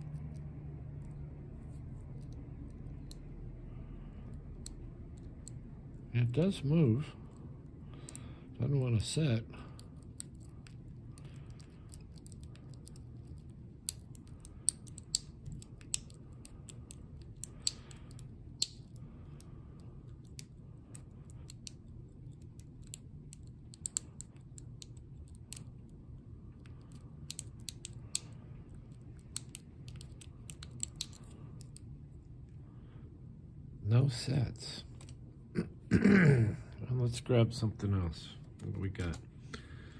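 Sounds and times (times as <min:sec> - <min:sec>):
low steady hum: 0:00.0 - 0:39.9
lock pick clicking in padlock: 0:09.8 - 0:19.0.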